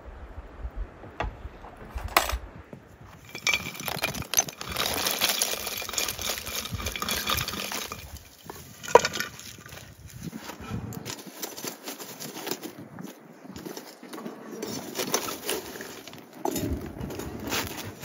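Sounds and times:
charcoal clattering into brazier: 3.2s - 9.7s.

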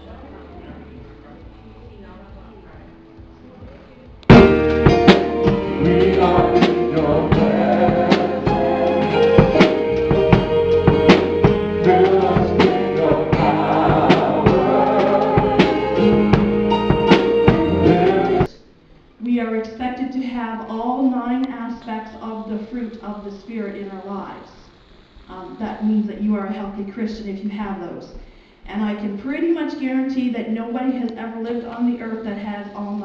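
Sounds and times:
worship band playing: 2.9s - 18.5s
drum hits: 4.2s - 18.5s
man singing: 4.3s - 18.5s.

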